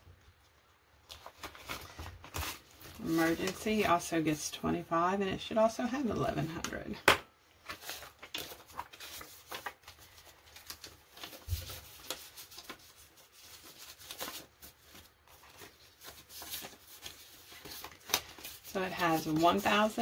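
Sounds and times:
paper banknotes rustling: 0:01.0 - 0:03.9, 0:07.6 - 0:20.0.

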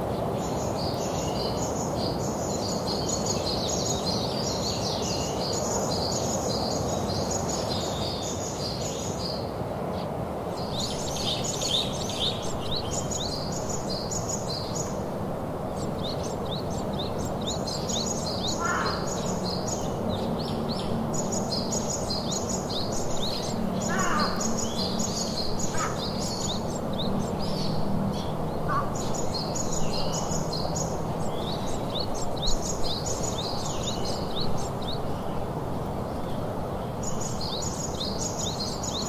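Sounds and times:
steady rushing background noise: 0:09.5 - 0:39.0
birds chirping: 0:10.5 - 0:39.0.

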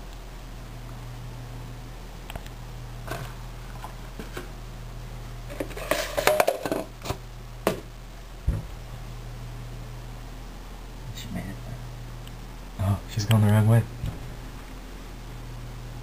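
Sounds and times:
low thump: 0:14.0 - 0:14.4.

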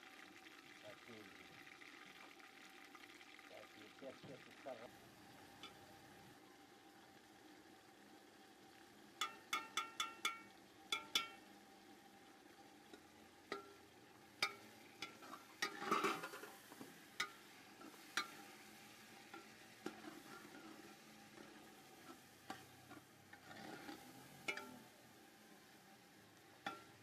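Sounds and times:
faint sizzle: 0:00.0 - 0:27.0
metal ladle clinking on pot: 0:09.2 - 0:11.4, 0:24.4 - 0:24.8.

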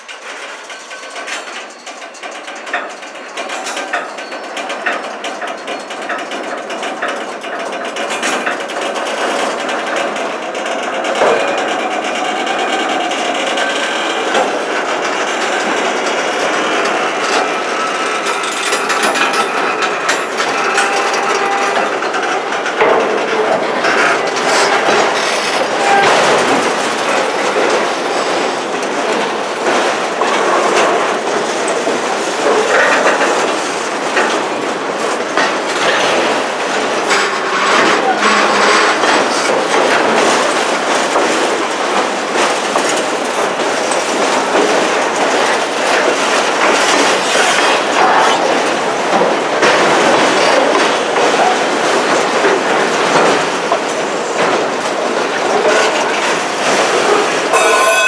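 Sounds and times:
freight train rumbling past: 0:00.0 - 0:58.0
wheels clattering over rail joints: 0:00.0 - 0:58.0.

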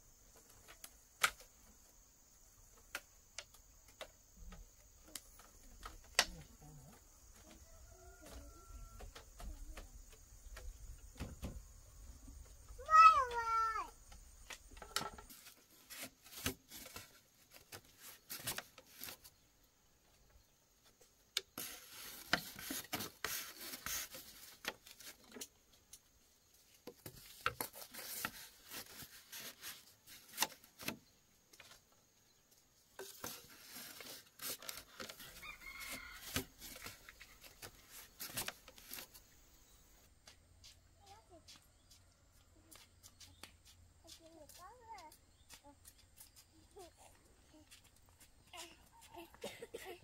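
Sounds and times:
rustling of handled objects: 0:12.2 - 0:19.4, 0:20.8 - 0:42.1.

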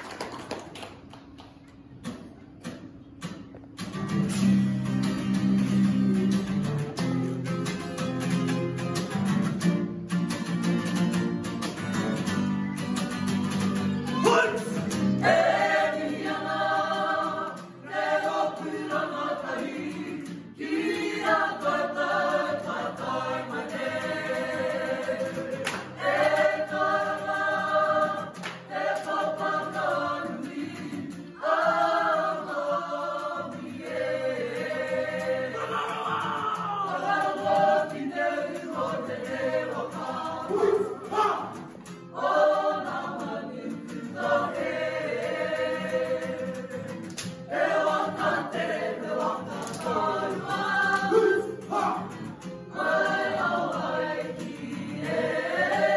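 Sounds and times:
strummed acoustic guitar: 0:02.0 - 0:55.9
group singing in unison: 0:14.2 - 0:55.9.

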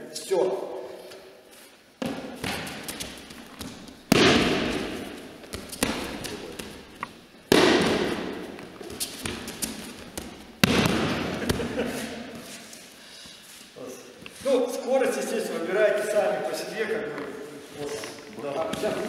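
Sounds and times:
slaps and foot taps on mats: 0:02.0 - 0:11.7.

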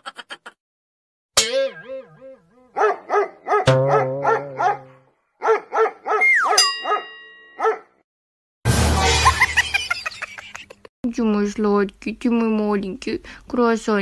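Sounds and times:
dog yipping: 0:02.7 - 0:07.9.

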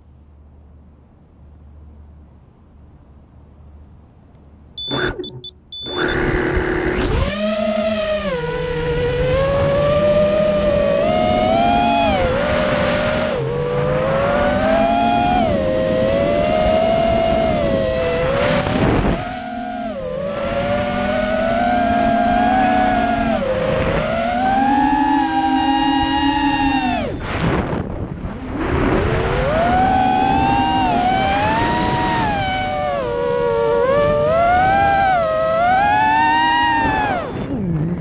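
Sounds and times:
short electronic beeps: 0:04.8 - 0:06.4
quadcopter motors whining: 0:04.8 - 0:27.8, 0:28.5 - 0:38.0.

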